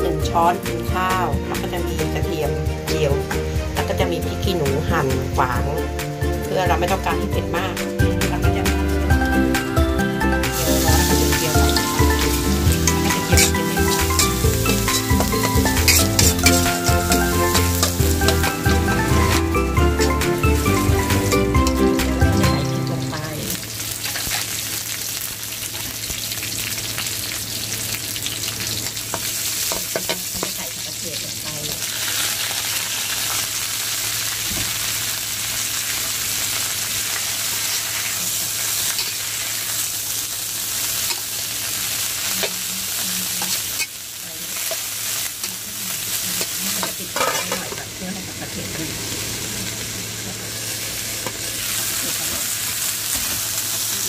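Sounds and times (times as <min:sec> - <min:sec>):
vegetables sizzling in a wok: 0:00.0 - 0:54.0
metal spatula scraping pan: 0:11.7 - 0:19.1, 0:46.8 - 0:47.8.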